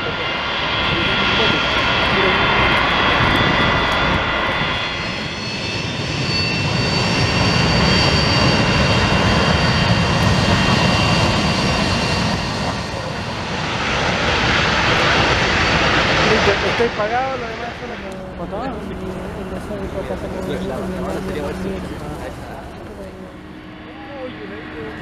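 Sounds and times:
high steady jet whine: 0.0s - 25.0s
jet engine roar: 0.0s - 25.0s.

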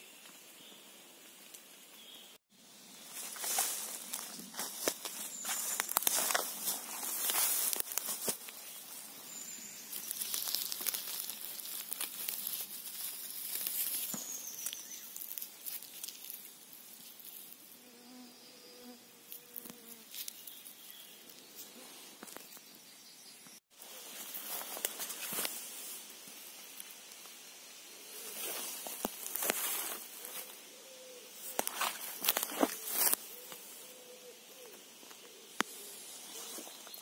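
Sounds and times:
rustling of grass and leaves: 0.0s - 17.9s, 19.2s - 22.7s, 23.7s - 37.0s
flying insect buzzing: 17.6s - 20.3s.

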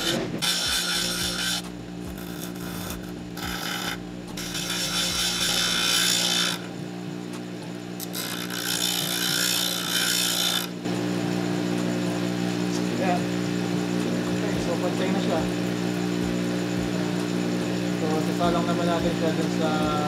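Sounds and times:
chisel grinding rasp: 0.0s - 6.7s, 8.0s - 10.8s
bench grinder motor hum: 0.0s - 6.9s, 7.6s - 20.0s.

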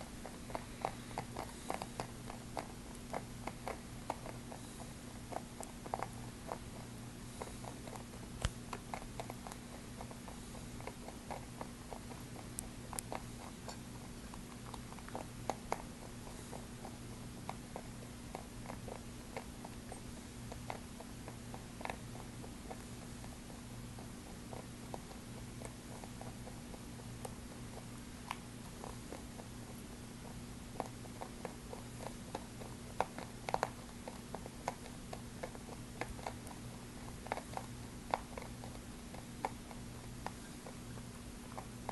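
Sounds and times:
rabbit chewing and crunching: 0.0s - 41.9s
steady low hum: 0.0s - 41.9s.

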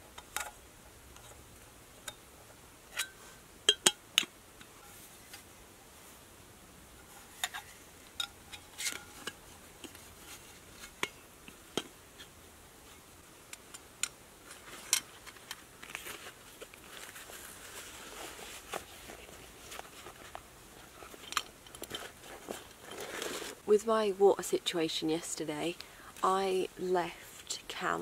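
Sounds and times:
mesh sack rustling: 14.4s - 21.3s, 21.9s - 23.6s.

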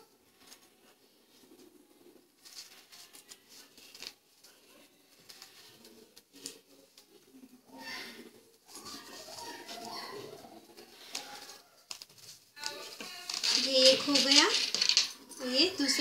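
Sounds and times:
light rustling: 11.0s - 16.0s.

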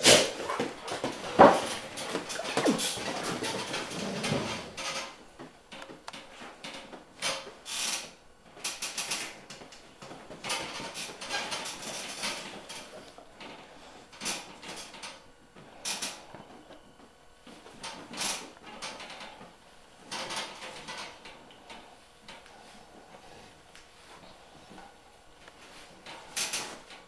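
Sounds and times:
dogs chewing and scuffling: 0.3s - 4.8s.

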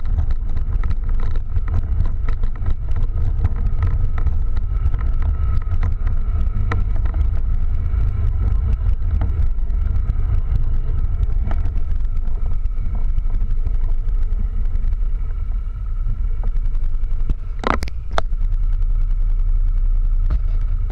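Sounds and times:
faint engine whine: 0.0s - 20.9s
quad engine rumble: 0.0s - 20.9s.

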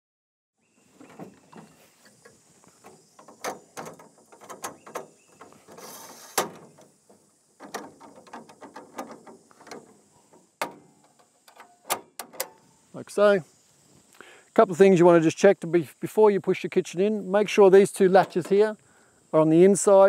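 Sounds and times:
metal legs clicking and rattling: 1.0s - 12.7s, 18.0s - 18.7s.

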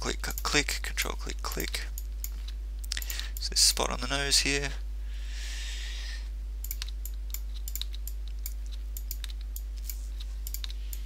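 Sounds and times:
low hum: 0.0s - 11.0s
mouse and keyboard clicking: 6.6s - 11.0s.

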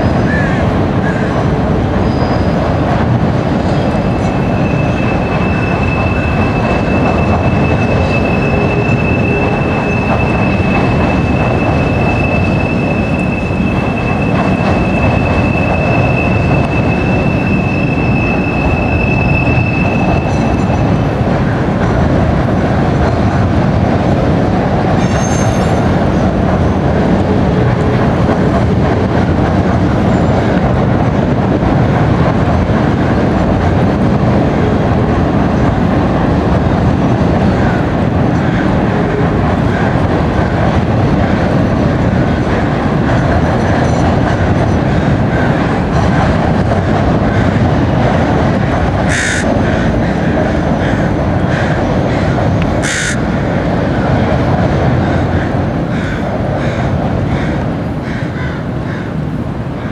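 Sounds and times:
train wheels rumbling on rail: 0.0s - 59.9s
high-pitched wheel squeal: 2.0s - 2.6s, 3.7s - 20.8s.

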